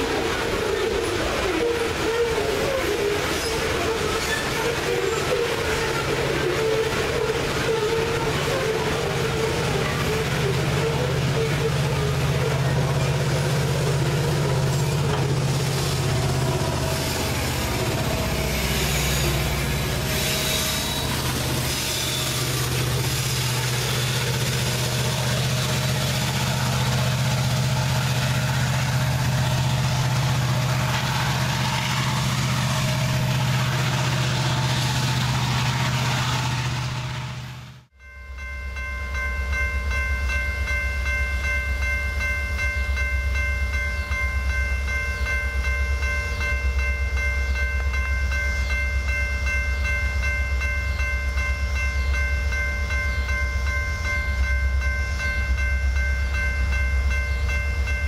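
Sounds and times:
hopper cars rolling on steel wheels: 0:00.0 - 0:36.8
diesel locomotive engine hum: 0:00.0 - 0:58.0.

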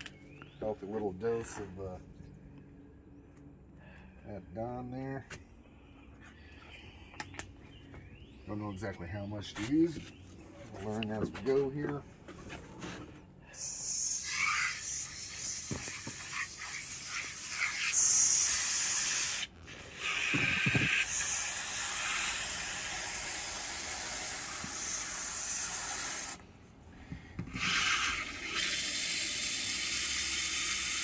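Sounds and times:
water spraying into metal bowl: 0:13.6 - 0:26.4, 0:27.6 - 0:31.0.

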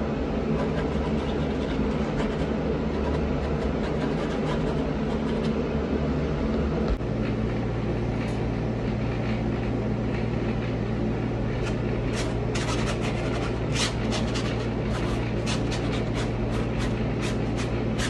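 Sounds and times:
air conditioner humming: 0:00.0 - 0:18.0
paintbrush scratching on canvas: 0:00.5 - 0:05.6, 0:11.6 - 0:18.0.

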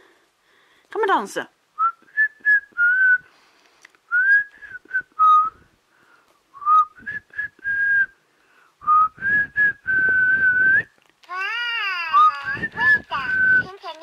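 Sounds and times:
person whistling a tune: 0:01.8 - 0:03.3, 0:04.1 - 0:05.6, 0:06.6 - 0:08.2, 0:08.8 - 0:10.9, 0:12.2 - 0:13.7.

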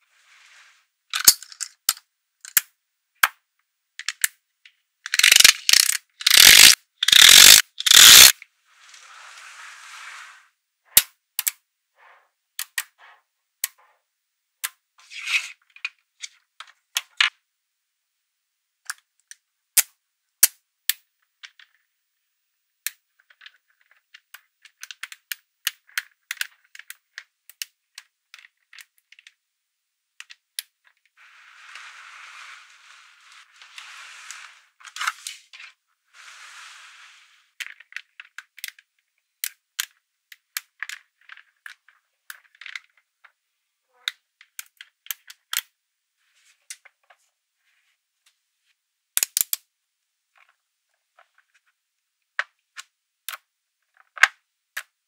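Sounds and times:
magnetic balls clicking together: 0:05.0 - 0:08.4, 0:11.4 - 0:11.6, 0:22.8 - 0:29.4, 0:37.6 - 0:43.0, 0:49.2 - 0:49.6.

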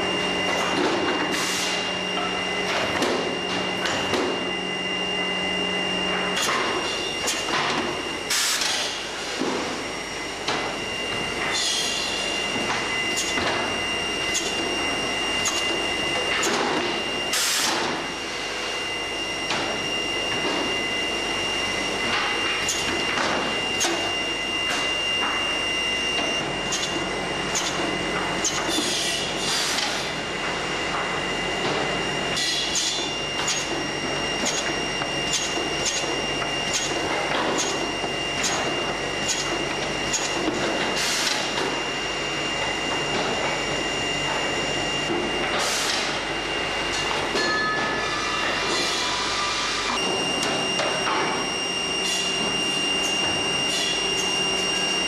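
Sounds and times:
machine hum with high whine: 0:00.0 - 0:55.0
pneumatic air hiss bursts: 0:28.8 - 0:30.1.

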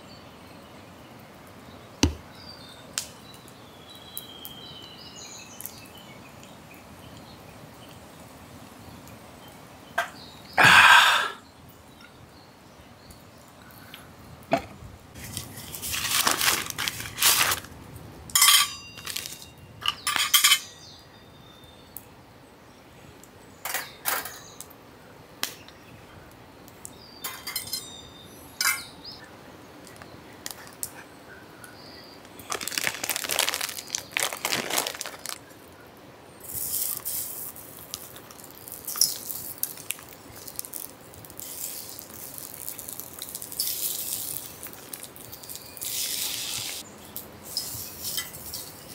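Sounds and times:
firewood knocking into place: 0:02.0 - 0:02.3
plastic packet rustling: 0:15.2 - 0:17.8, 0:19.0 - 0:19.5, 0:32.4 - 0:35.6, 0:36.6 - 0:46.6
sausages sizzling in a skillet: 0:36.4 - 0:46.8.

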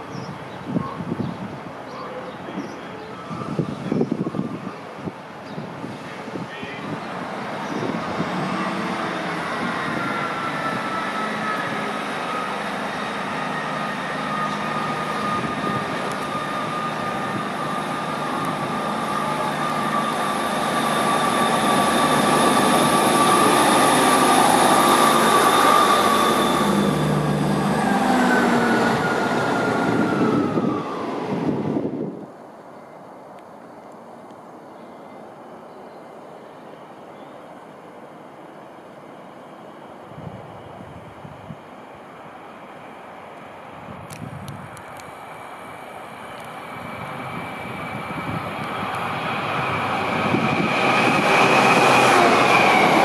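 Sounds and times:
diesel train engines rumbling: 0:00.0 - 0:53.0
high train whine: 0:00.0 - 0:53.0.

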